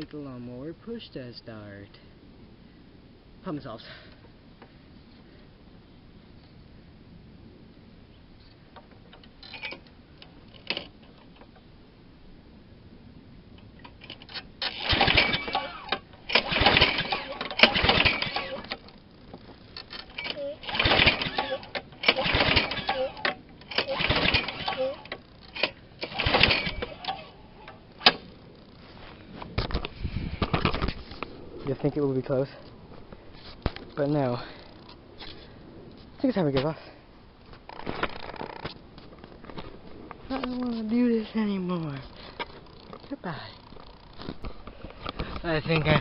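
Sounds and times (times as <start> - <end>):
faint steady background noise: 0.0 - 46.0
engine turning over: 13.8 - 19.0, 19.7 - 28.7.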